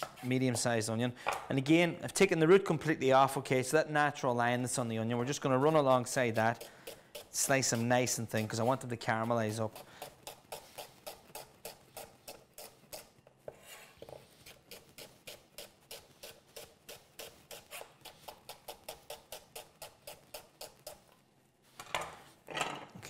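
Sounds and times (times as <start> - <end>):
knife slicing onion on wooden board: 5.7 - 21.1.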